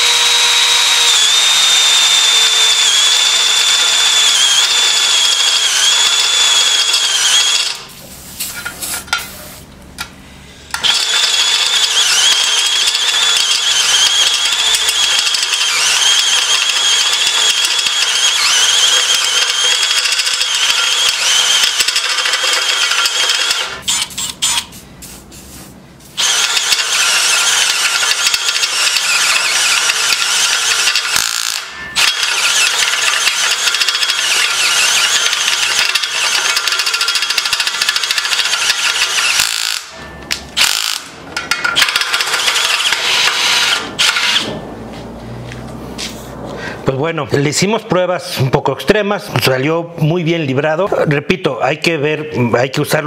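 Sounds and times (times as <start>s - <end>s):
drill bit squealing on metal: 0.0s - 7.8s, 10.8s - 24.7s, 26.2s - 41.1s
drill motor under load: 0.0s - 7.9s, 10.7s - 24.7s, 26.2s - 44.6s.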